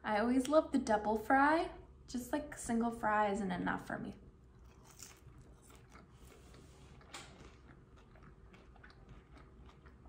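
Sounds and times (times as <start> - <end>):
chewing french fries: 4.4 - 10.0.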